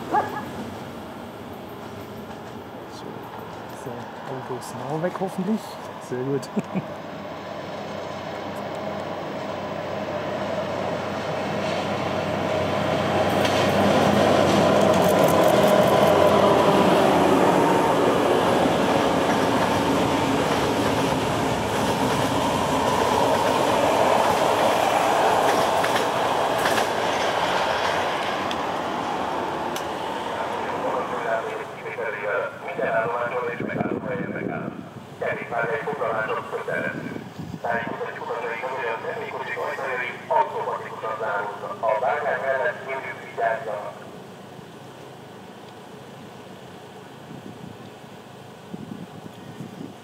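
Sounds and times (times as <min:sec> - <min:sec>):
train running past: 0:00.0 - 0:49.3.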